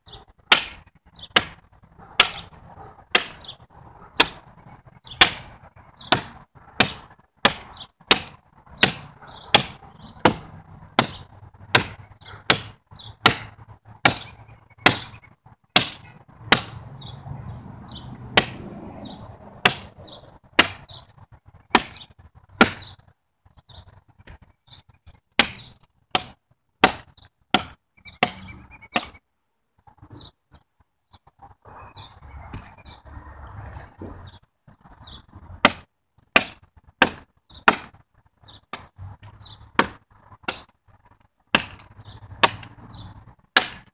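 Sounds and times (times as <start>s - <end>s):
axe chopping wood: 0.5s - 3.5s, 4.2s - 4.5s, 5.2s - 15.2s, 15.8s - 16.8s, 18.4s - 18.7s, 19.6s - 20.0s, 20.6s - 21.0s, 21.7s - 22.0s, 22.6s - 22.9s, 25.3s - 29.2s, 35.6s - 38.0s, 38.7s - 40.8s, 41.5s - 42.8s, 43.5s - 43.9s.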